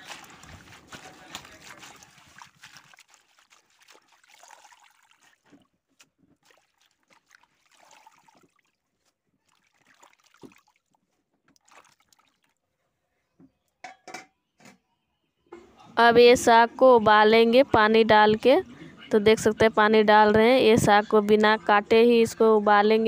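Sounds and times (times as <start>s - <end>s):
water sloshing and trickling: 0.0s - 12.8s.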